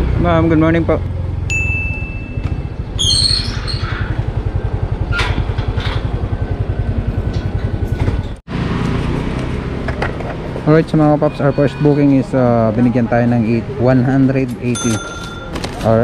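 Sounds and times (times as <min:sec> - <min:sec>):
brief squeak: 0:03.0 - 0:04.2
scooter engine idling: 0:04.0 - 0:09.1.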